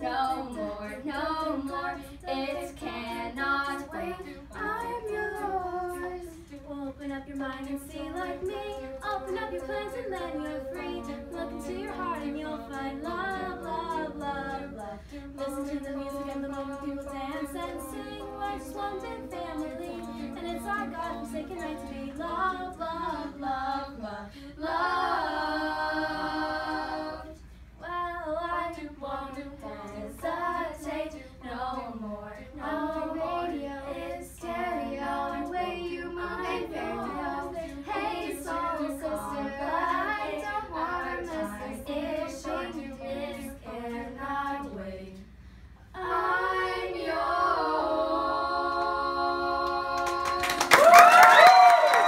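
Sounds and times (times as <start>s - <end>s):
women singing a cappella: 0.0s - 52.0s
audience cheering and applause: 50.3s - 52.0s.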